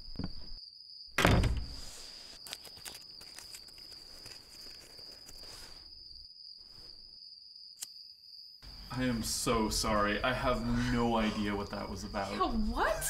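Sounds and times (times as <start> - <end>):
crickets chirring: 0.0 - 13.0
door slamming: 1.2 - 1.8.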